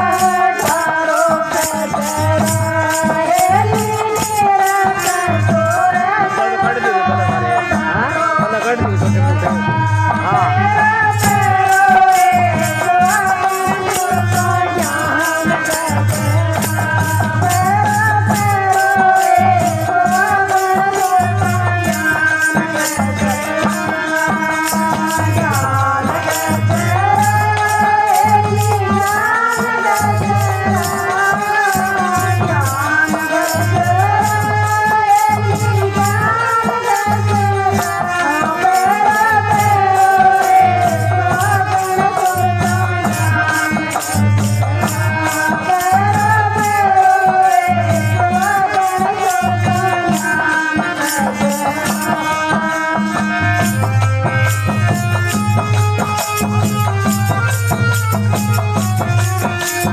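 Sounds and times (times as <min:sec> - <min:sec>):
woman singing: 0:00.0 - 0:57.6
fast rattle percussion: 0:00.0 - 0:59.9.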